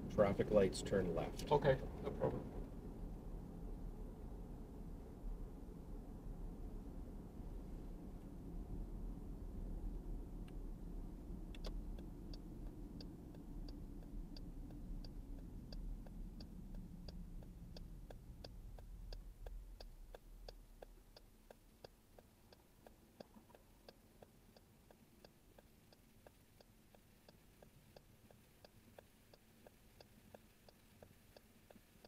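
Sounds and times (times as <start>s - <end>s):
road and tyre rumble: 0.0s - 28.6s
turn signal clicking: 8.1s - 32.0s.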